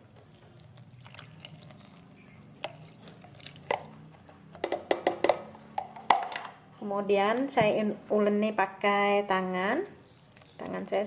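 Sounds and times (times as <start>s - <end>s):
liquid pouring into bowl: 0.9s - 3.9s.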